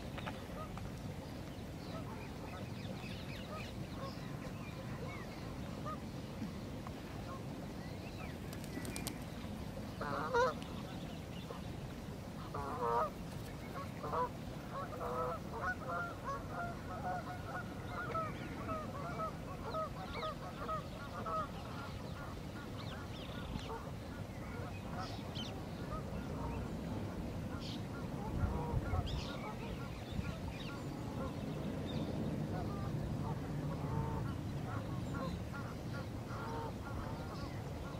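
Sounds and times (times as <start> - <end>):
geese honking: 10.0 - 10.6, 12.5 - 13.1
wind rumble on microphone: 23.2 - 37.9.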